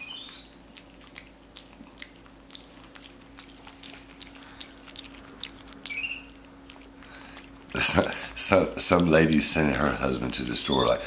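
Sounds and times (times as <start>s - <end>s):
monkey chewing with lip-smacking: 0.0s - 8.4s.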